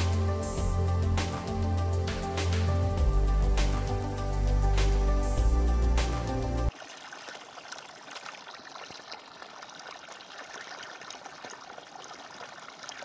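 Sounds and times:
water pouring and splashing: 0:06.7 - 0:13.0.

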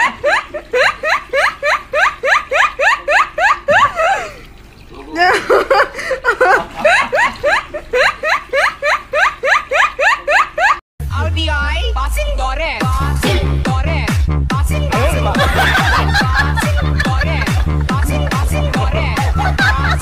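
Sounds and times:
person laughing in high squeals: 0:00.0 - 0:04.5
electronic dance music: 0:11.1 - 0:20.0.

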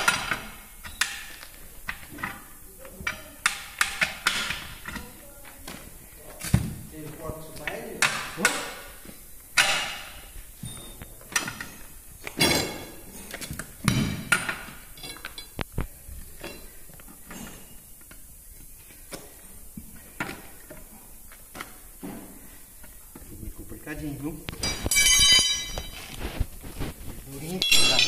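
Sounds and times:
loud metal knocks with ringing: 0:27.6 - 0:28.0.

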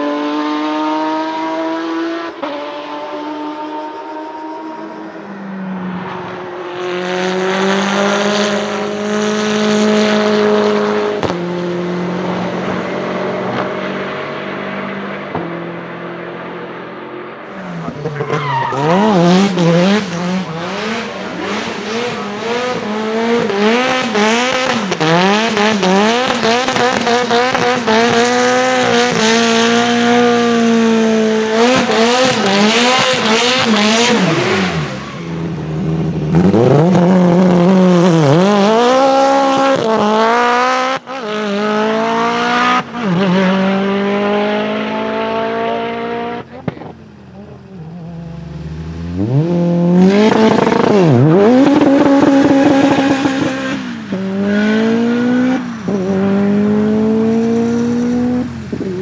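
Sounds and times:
racing car engine revving: 0:00.0 - 0:05.3, 0:06.0 - 0:59.0
tyre squeal: 0:17.6 - 0:19.2.

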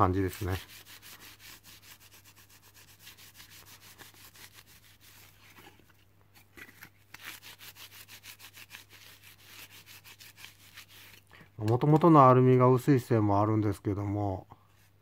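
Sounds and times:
wet tissue scrubbing metal panel: 0:00.0 - 0:06.0, 0:07.1 - 0:11.2.

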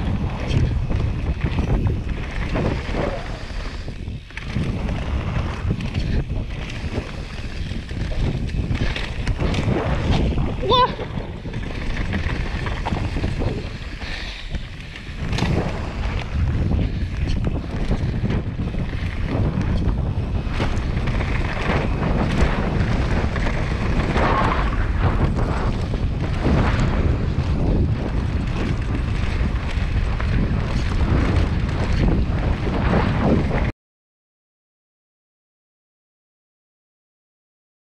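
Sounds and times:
tyres rolling on dirt: 0:00.0 - 0:33.7
wind buffeting microphone: 0:00.0 - 0:33.7.

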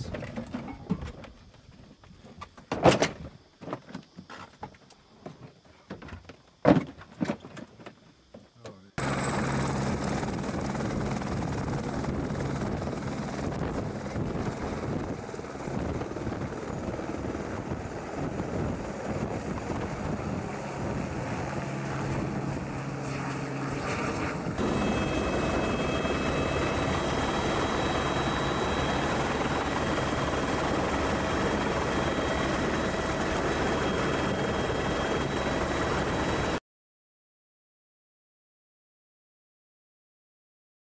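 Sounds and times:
helicopter engine and rotor: 0:09.0 - 0:36.6
high turbine whine: 0:09.0 - 0:36.6.

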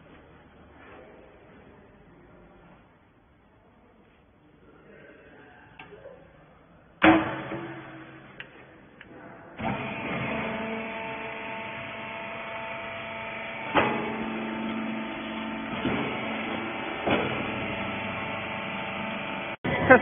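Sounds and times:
sharp clunk: 0:07.0 - 0:08.4
electric motor and hydraulic pump hum: 0:09.6 - 0:19.6.

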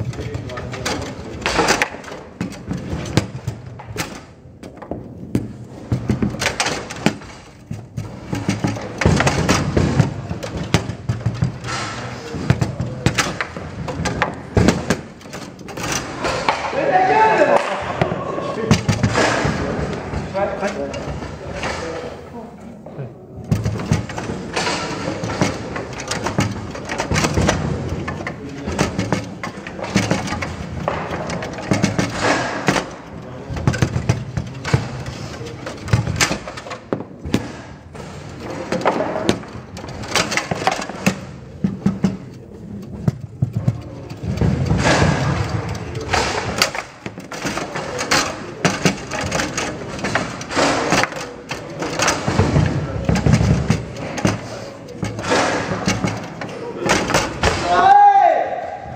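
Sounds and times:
table football ball and rods knocking: 0:00.0 - 0:22.2, 0:23.4 - 0:58.6.

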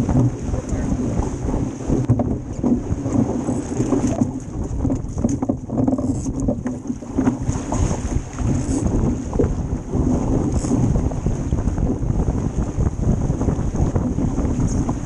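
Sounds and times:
water rushing along a hull: 0:00.0 - 0:15.0
wind buffeting microphone: 0:00.0 - 0:15.0.

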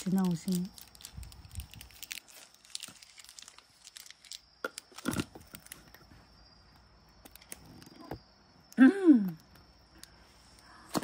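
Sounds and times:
plastic packet crinkling: 0:00.0 - 0:06.0.

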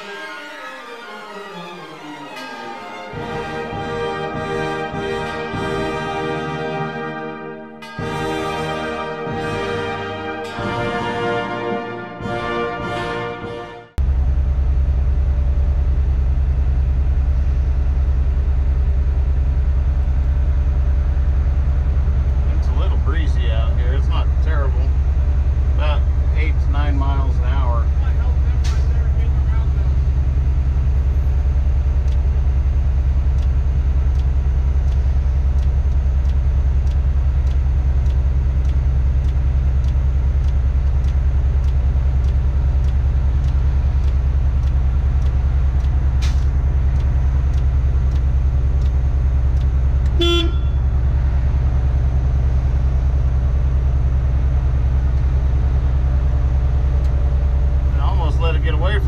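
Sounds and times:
diesel engine humming: 0:01.8 - 0:59.0
horn toot: 0:02.4 - 0:14.0, 0:50.1 - 0:51.0
faint regular ticking: 0:19.7 - 0:59.0.

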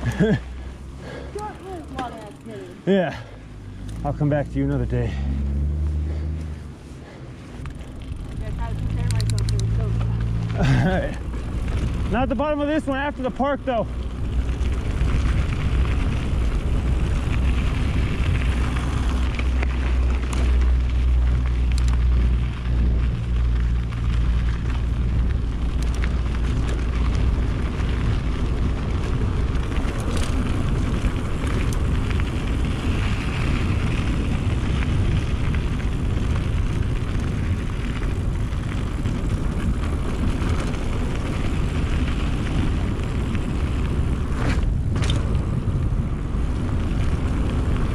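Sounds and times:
bike riding noise: 0:00.0 - 0:47.9
sharp clicks: 0:08.8 - 0:09.9, 0:21.7 - 0:22.0.

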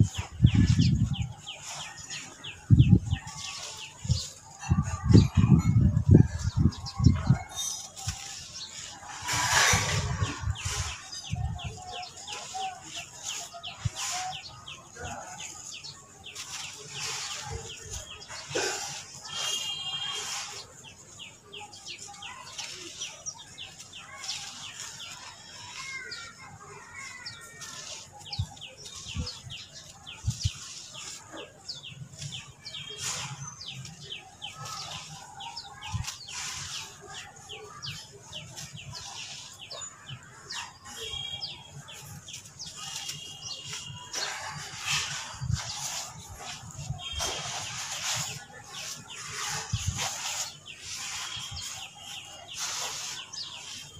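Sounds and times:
birds chirping: 0:00.0 - 0:53.9.

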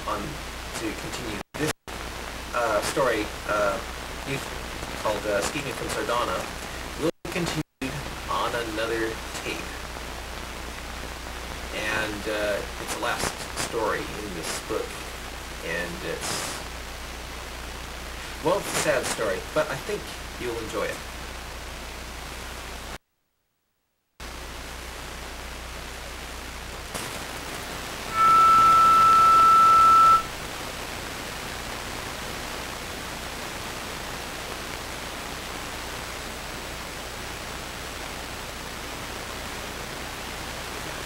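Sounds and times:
recording hiss: 0:00.0 - 0:23.0, 0:24.2 - 0:41.0
high electronic beep: 0:28.1 - 0:30.3.

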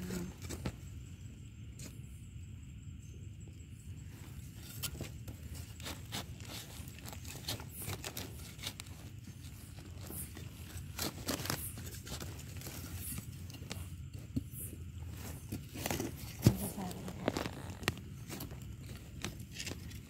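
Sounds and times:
knife scraping dry soil: 0:04.2 - 0:20.0.

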